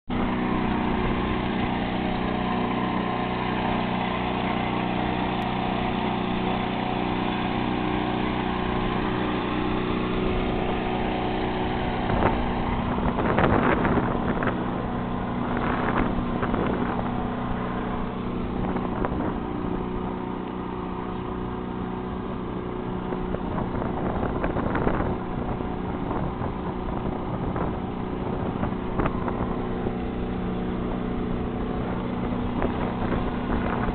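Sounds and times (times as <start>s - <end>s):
outboard motor droning: 0.0s - 33.9s.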